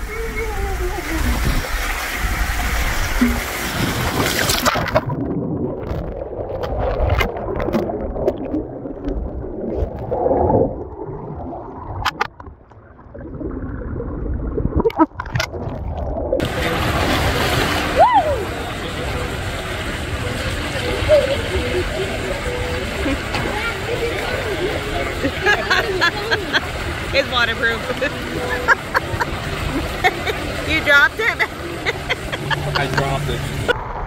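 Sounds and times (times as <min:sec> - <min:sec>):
water rushing through slide tube: 0:00.0 - 0:12.2, 0:12.9 - 0:34.0
underwater gurgling and bubbling: 0:00.0 - 0:32.8
pool water splashing: 0:00.0 - 0:34.0
underwater clicks: 0:11.8 - 0:12.8, 0:14.7 - 0:15.8.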